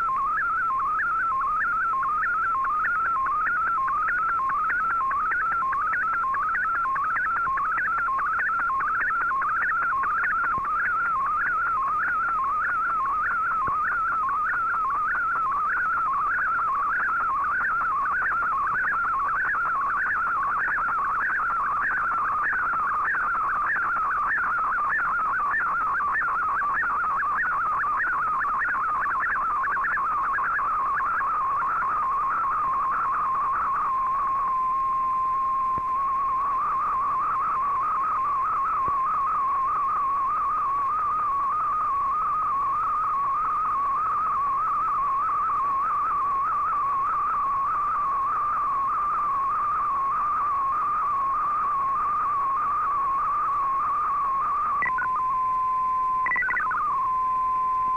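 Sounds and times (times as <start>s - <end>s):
faint radio hiss: 0.0s - 57.9s
warbling sweeping radio tone: 56.2s - 57.1s.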